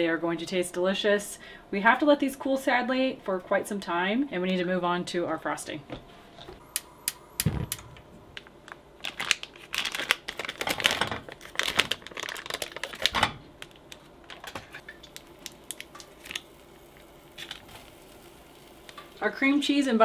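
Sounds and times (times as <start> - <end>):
foil wrapper crinkling: 8.4 - 19.1.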